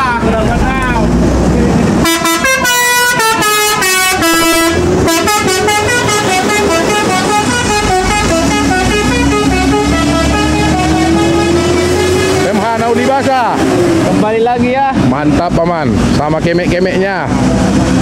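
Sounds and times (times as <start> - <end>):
bus engine rumbling: 0.0 - 18.0
multi-tone musical bus horn: 2.0 - 12.6.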